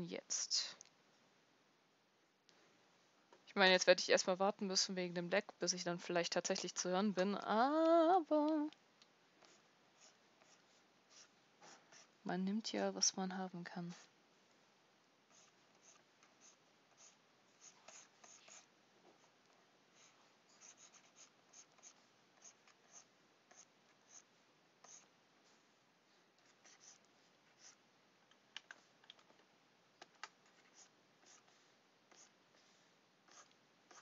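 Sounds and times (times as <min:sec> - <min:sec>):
stylus scratching on tablet: 0:09.4 - 0:12.2, 0:15.3 - 0:25.7, 0:26.4 - 0:27.8, 0:30.3 - 0:34.0.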